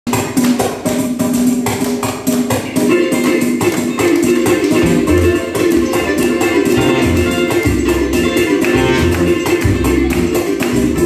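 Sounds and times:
samba band playing: 0.1s - 11.0s.

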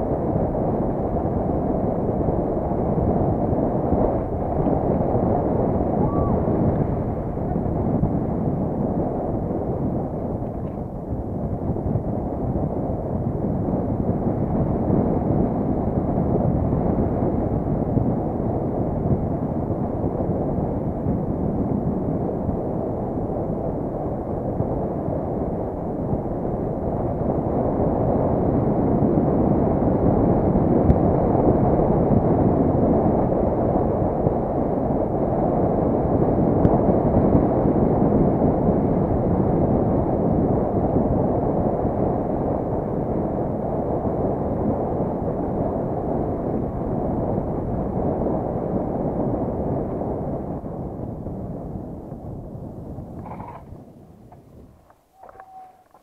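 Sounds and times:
wind on camera microphone: 0.0s - 56.0s.

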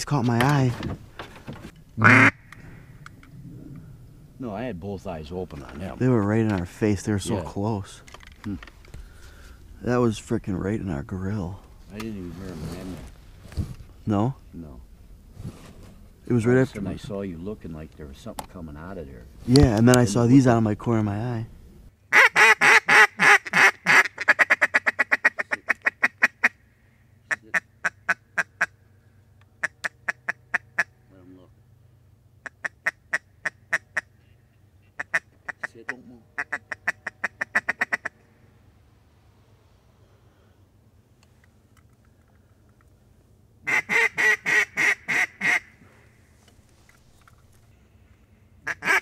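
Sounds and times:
duck call quacks: 2.0s - 2.5s, 22.1s - 26.6s, 35.0s - 38.2s, 43.7s - 45.8s, 48.6s - 49.0s.

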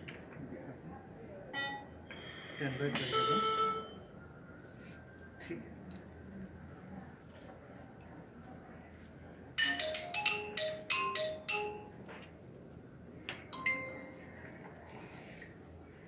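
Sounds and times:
electronic chime melody: 13.6s - 14.3s.

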